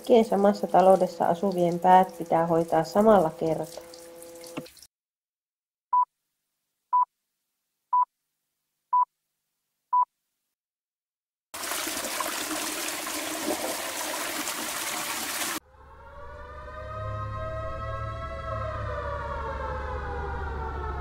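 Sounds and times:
washing machine churning water: 0.0s - 4.9s, 11.6s - 15.6s.

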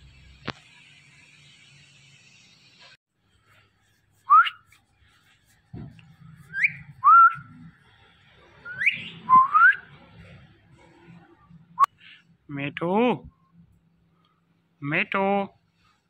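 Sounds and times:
parakeets whistling: 6.5s - 7.5s, 8.6s - 9.8s.

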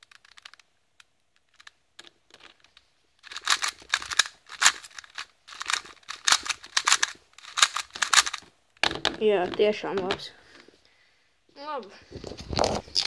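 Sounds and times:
puzzle cube clicking and rattling: 0.0s - 10.3s.

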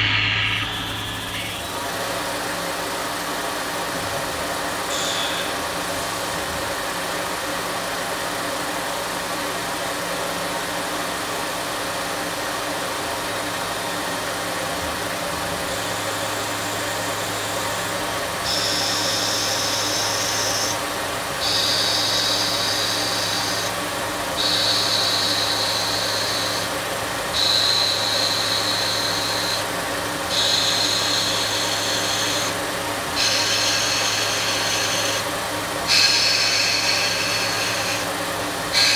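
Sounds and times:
high-pitched metal cutting: 0.0s - 2.9s, 4.8s - 5.8s, 15.2s - 38.9s
mill spindle running: 0.0s - 38.9s.

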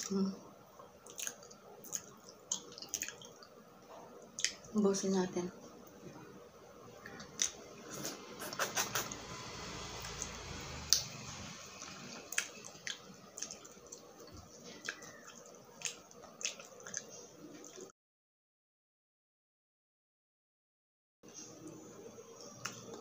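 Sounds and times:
person chewing meat: 1.0s - 3.5s, 4.3s - 4.6s, 11.8s - 17.9s
mouth clicks and smacks: 4.4s - 4.6s, 7.2s - 9.2s, 14.8s - 17.8s.

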